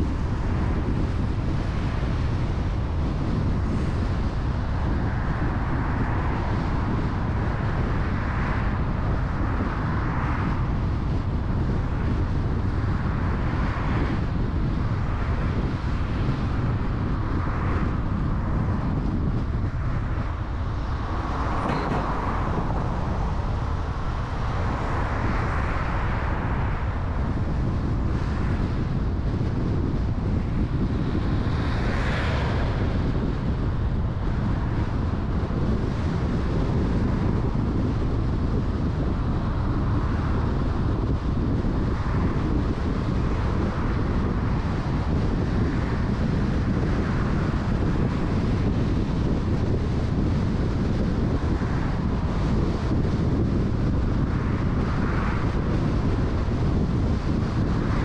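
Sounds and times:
wind rumble on microphone: 0.0s - 58.0s
street traffic passing: 16.8s - 35.8s.

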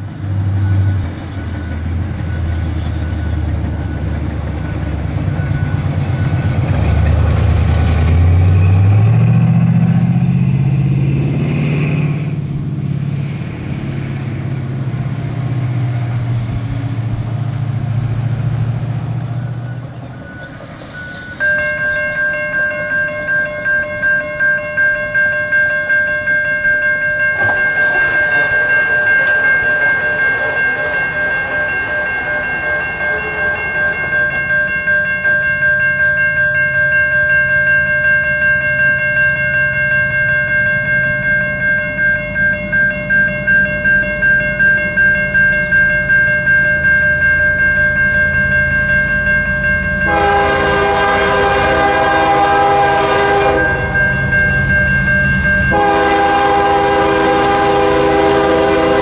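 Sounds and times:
level crossing bell ringing: 20.2s - 57.6s
locomotive horn: 27.4s - 34.8s, 50.0s - 54.3s, 55.6s - 59.0s.

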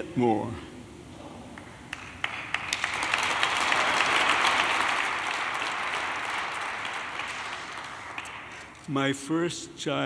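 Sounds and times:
audience applauding: 1.6s - 8.9s.

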